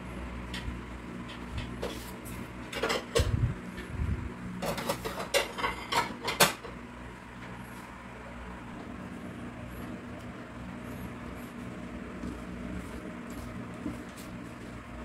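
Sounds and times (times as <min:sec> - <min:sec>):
kitchenware clinking and knocking: 0:04.6 - 0:06.7.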